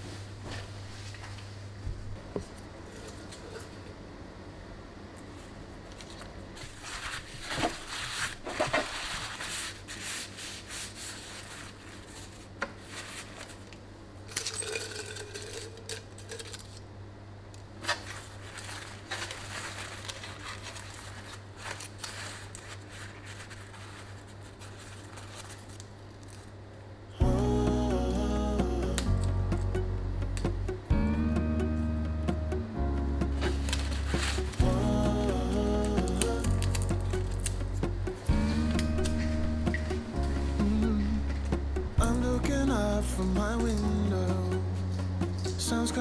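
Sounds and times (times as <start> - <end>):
low steady hum: 0.0 - 46.0
paper rustling and crinkling: 5.3 - 14.7, 17.8 - 26.6, 33.4 - 34.6
music: 27.2 - 46.0.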